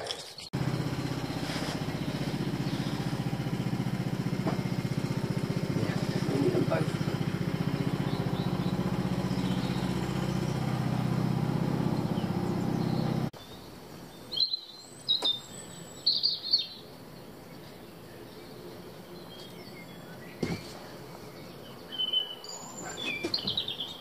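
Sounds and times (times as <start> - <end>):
small engine droning: 0.6 - 13.4
bird chirping: 1.1 - 3.8, 4.6 - 24.0.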